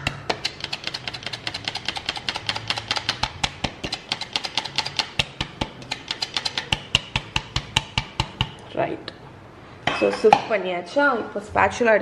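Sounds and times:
flour sifter clicking rapidly: 0.0 - 8.4.

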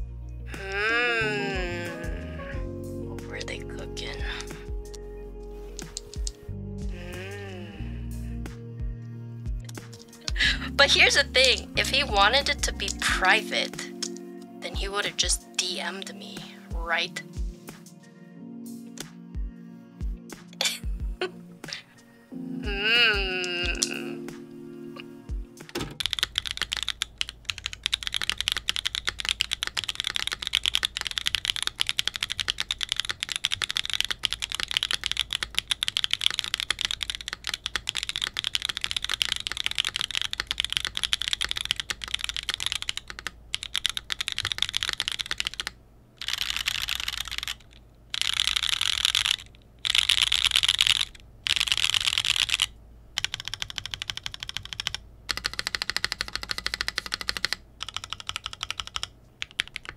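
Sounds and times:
fast keyboard typing: 5.8 - 6.4, 9.8 - 15.7, 25.6 - 59.9.

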